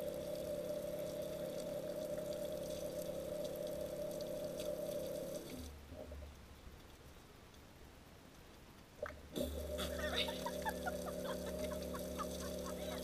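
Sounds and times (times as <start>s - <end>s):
shower water splashing: 0.0s - 5.8s, 9.4s - 13.0s
steady hum: 0.0s - 6.6s, 9.0s - 13.0s.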